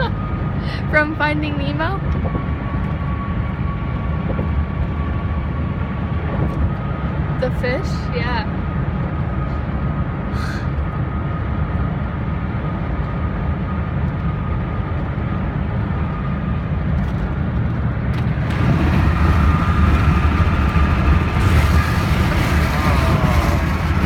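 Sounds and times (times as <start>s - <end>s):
car road noise: 8.5s - 24.0s.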